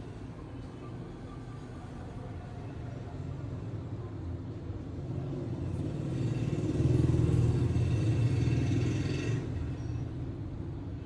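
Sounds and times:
passing road vehicle rumble: 4.9 - 10.6.

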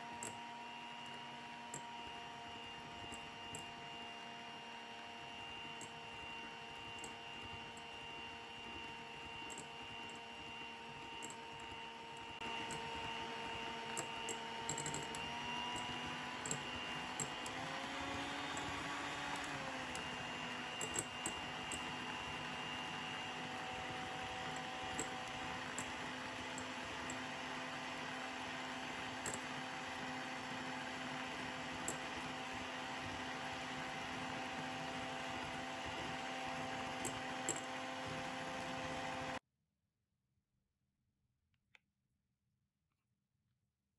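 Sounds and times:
electric hand mixer whipping cream: 0.0 - 39.4
beaters clicking against bowl: 14.0 - 17.6.

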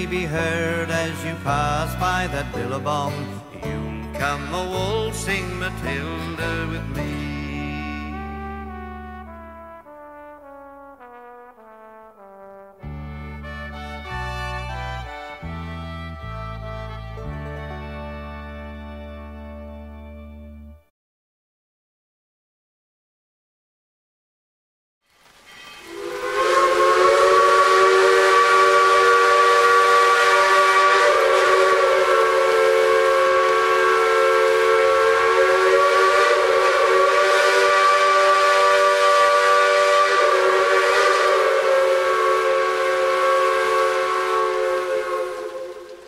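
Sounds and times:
steam locomotive whistle: 0.0 - 2.6, 3.8 - 12.6, 25.4 - 46.0
steam hissing: 25.2 - 46.0.

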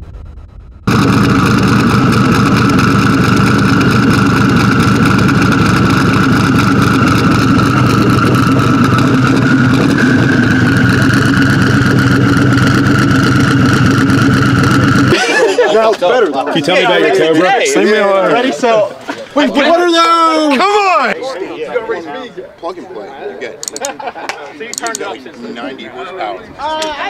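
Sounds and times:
steady high whine: 0.0 - 15.2
car engine idling: 0.1 - 15.2.

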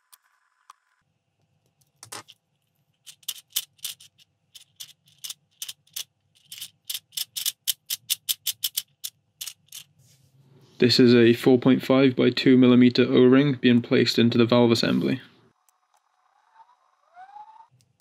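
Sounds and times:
clicks and rattles of parts: 1.8 - 10.0.

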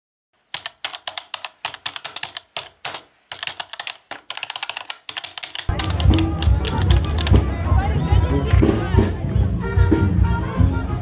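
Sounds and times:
keyboard typing clicks: 0.5 - 7.4.

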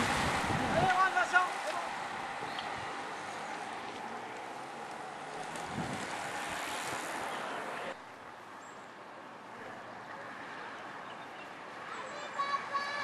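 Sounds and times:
wind rushing over microphone: 0.0 - 3.1, 5.4 - 7.3
vehicle road noise: 0.0 - 13.0.

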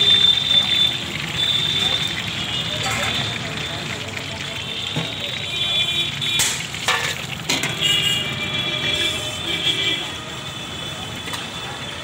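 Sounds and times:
hot oil sizzling: 0.0 - 12.0
metal skimmer knocking on pan: 6.4 - 7.8.

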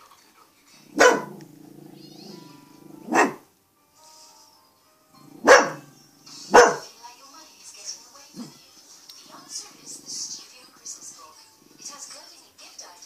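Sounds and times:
dog barking: 0.9 - 1.6, 2.9 - 3.5, 5.4 - 6.9.

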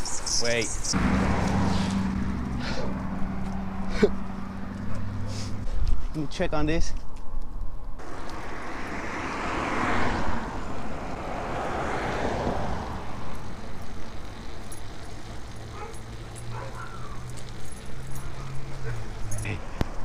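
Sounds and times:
road traffic passing: 0.0 - 20.0.

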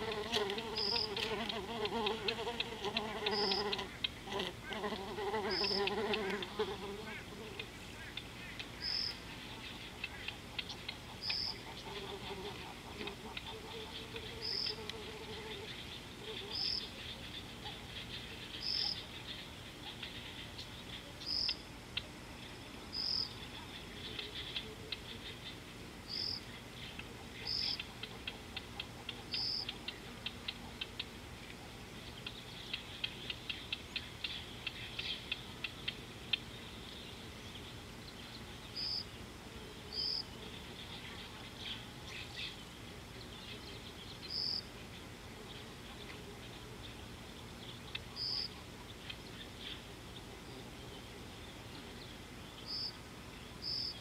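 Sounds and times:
fast clicking insect chirps: 0.0 - 4.2, 10.0 - 11.6, 29.3 - 31.0
steady low hum: 0.0 - 54.0.

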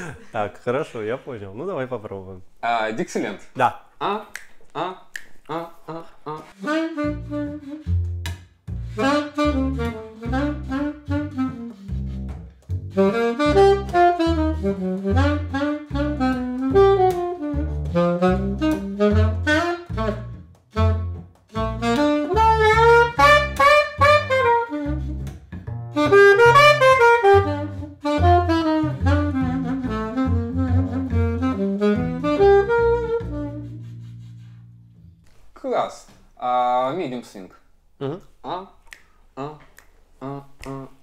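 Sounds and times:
alto saxophone jazz line: 5.5 - 35.0
plucked double bass: 7.0 - 34.2.

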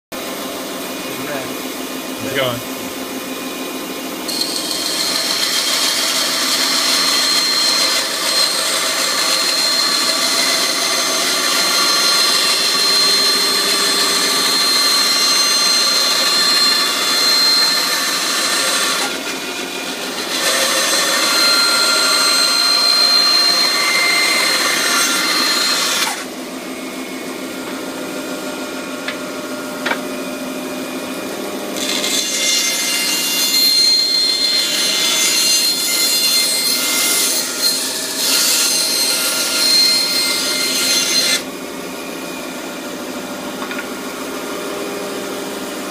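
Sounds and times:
bandsaw running idle: 4.3 - 26.4
bandsaw cutting wood: 4.3 - 27.6, 31.7 - 41.5.

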